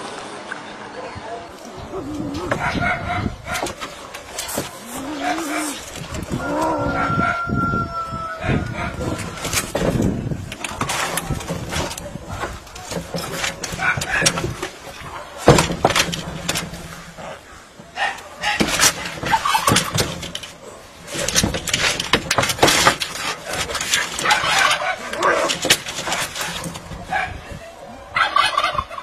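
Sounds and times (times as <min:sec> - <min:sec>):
cats fighting yowling and hissing: 0:04.5 - 0:09.6.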